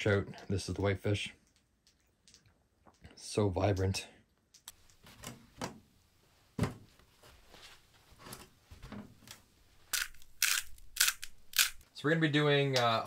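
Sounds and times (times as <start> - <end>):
thump: 6.6 - 6.9.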